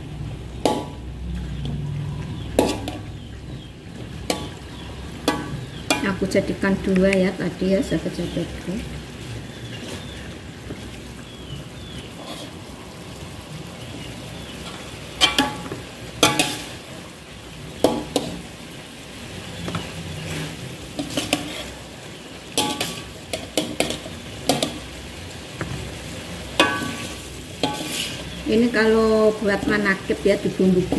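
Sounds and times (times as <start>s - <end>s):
sauce sizzling: 0.0s - 30.9s
metal spatula scraping a wok: 2.4s - 3.3s, 12.1s - 12.7s, 14.6s - 16.9s, 19.6s - 24.8s, 26.4s - 28.5s.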